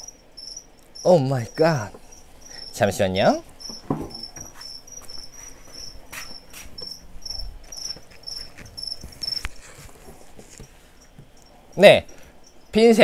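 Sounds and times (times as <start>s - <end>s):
cricket chirping: 0.0s - 13.0s
knocks from handling objects: 3.7s - 4.6s.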